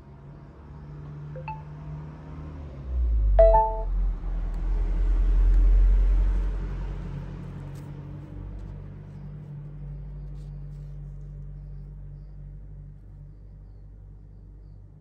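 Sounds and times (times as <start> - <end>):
short chime through speaker: 3.4 - 3.9.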